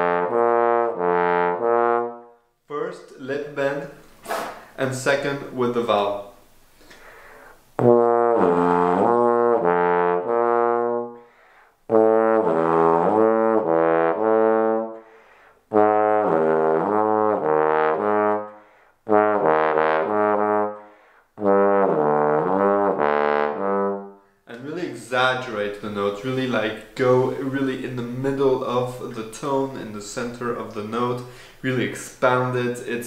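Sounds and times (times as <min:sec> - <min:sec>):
bass trombone low notes: 0:00.0 - 0:02.4, 0:07.8 - 0:11.2, 0:11.9 - 0:15.0, 0:15.7 - 0:18.5, 0:19.1 - 0:20.8, 0:21.4 - 0:30.8.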